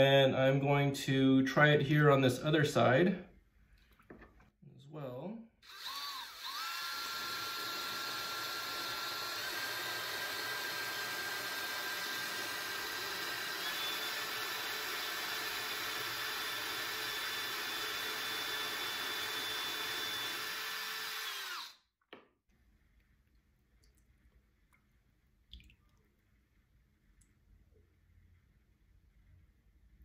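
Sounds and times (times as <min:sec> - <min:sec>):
cordless drill motor whine: 0:05.6 - 0:21.8
drill bit grinding rock: 0:05.6 - 0:21.8.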